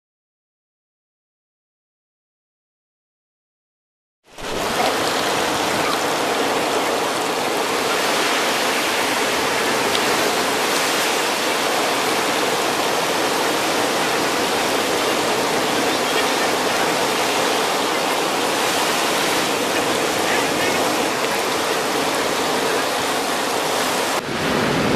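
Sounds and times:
steady rushing hiss: 4.4s - 24.3s.

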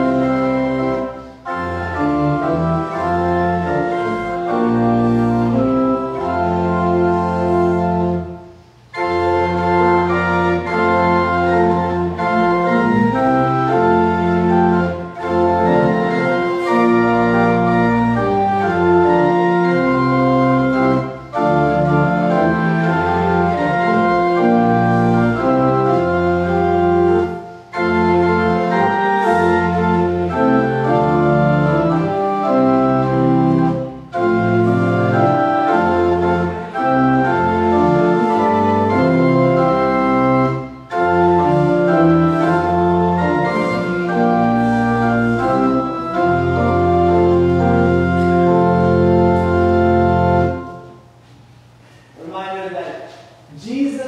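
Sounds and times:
pipe organ playing a hymn: 0.0s - 51.3s.

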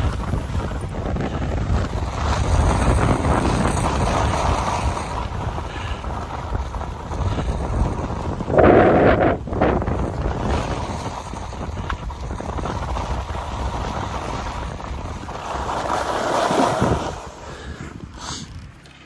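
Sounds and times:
wind buffeting microphone: 0.0s - 19.0s
rough scrape on snow: 1.5s - 18.5s
snow hissing under skis: 15.3s - 17.6s.

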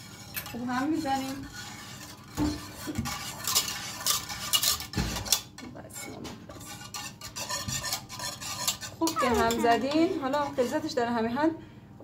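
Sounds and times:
whisk scraping against metal pot: 0.0s - 11.1s.

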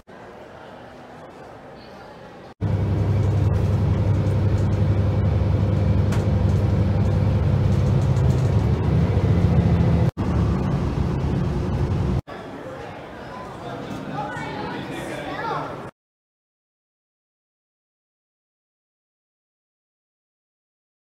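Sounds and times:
vehicle rumble from inside: 2.6s - 12.2s.

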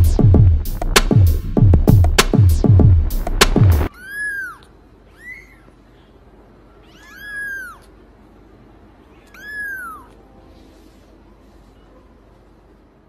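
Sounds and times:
cat meowing: 3.9s - 5.8s, 6.7s - 8.0s, 9.0s - 10.3s.

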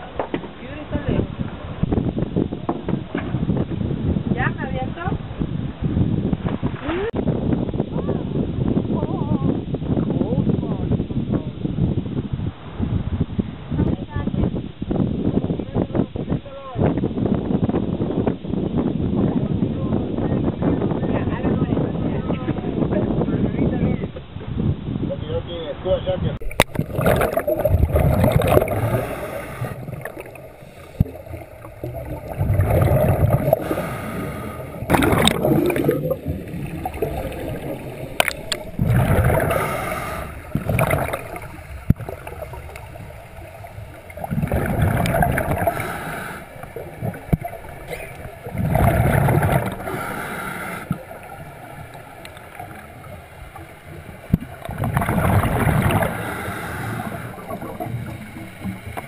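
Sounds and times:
exhaled bubbles gurgling: 26.4s - 59.0s
regulator breathing underwater: 26.7s - 52.9s, 54.3s - 59.0s.

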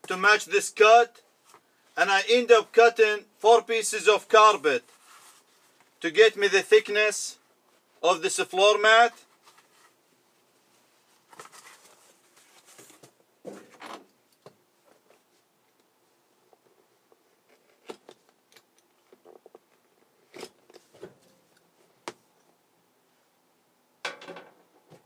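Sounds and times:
carpet and cardboard rustling: 4.8s - 6.0s, 9.2s - 14.0s.

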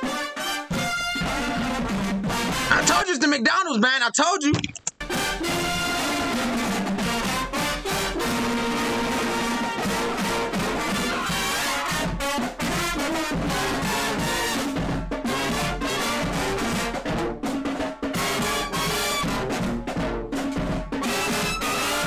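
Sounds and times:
brass and sousaphones playing: 0.0s - 3.2s, 5.0s - 22.0s
steady drum beat: 9.4s - 18.8s.

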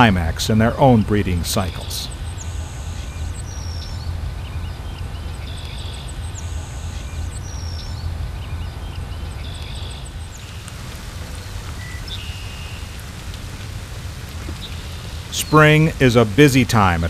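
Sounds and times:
distant birds calling: 0.0s - 17.0s
low rumble: 2.8s - 15.3s.

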